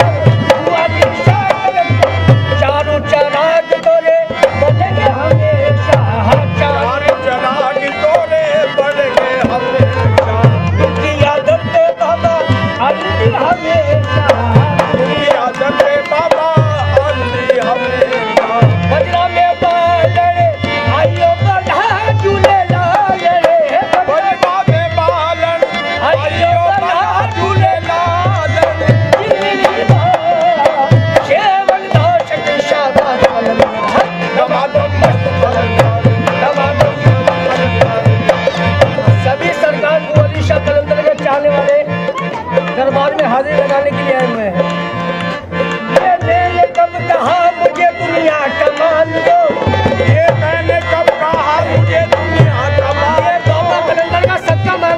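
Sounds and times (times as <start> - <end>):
tabla drumming: 0.0 - 54.9
hand claps: 42.1 - 48.0.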